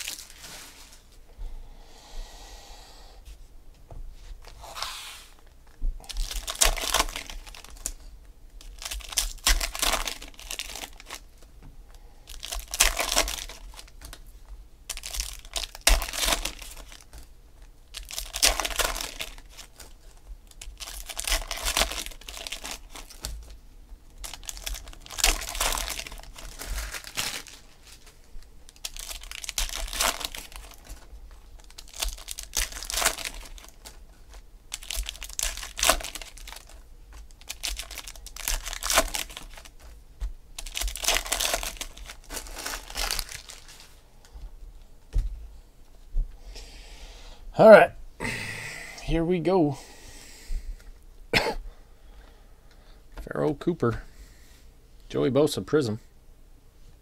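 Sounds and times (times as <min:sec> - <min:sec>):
foil wrappers tearing and crinkling: 0:00.0 - 0:00.8, 0:06.0 - 0:11.5, 0:12.3 - 0:14.3, 0:14.9 - 0:44.0.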